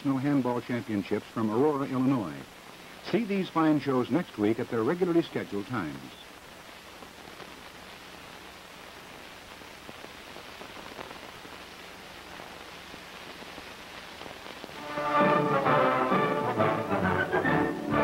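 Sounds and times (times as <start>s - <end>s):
film soundtrack hiss and crackle: 0.0s - 18.0s
orchestral music with brass: 14.8s - 18.0s.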